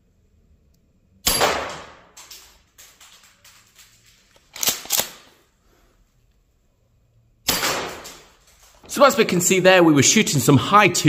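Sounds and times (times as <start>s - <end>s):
sharp clacks: 1.8s - 5.1s.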